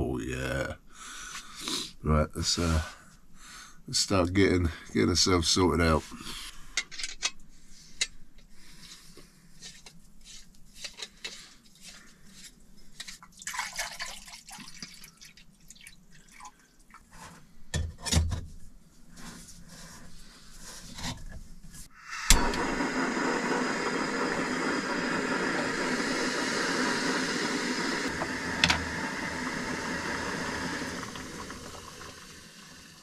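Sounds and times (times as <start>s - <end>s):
water pouring into a pot: 13.4s - 17.0s, 28.0s - 33.0s
gas stove burning hiss: 21.8s - 33.0s
gas stove clicking alight: 22.2s - 31.2s.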